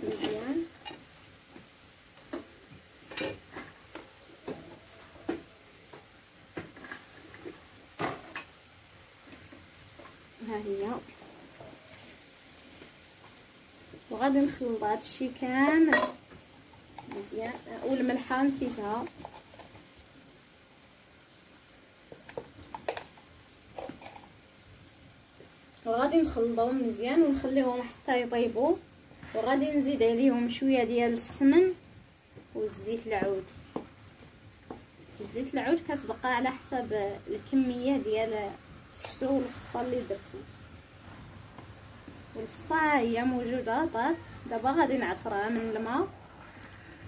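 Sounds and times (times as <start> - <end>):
frying pan sizzling: 0.0 - 47.0
pots and utensils clinking: 2.3 - 5.5, 15.8 - 16.2
faint clicks and taps: 22.1 - 24.3, 33.2 - 35.0.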